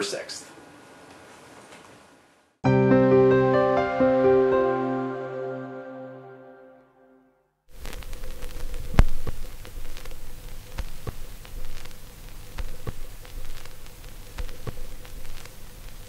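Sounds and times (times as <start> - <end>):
hiss and static: 7.7 - 16.0
sharp clicks and pops: 7.8 - 16.0.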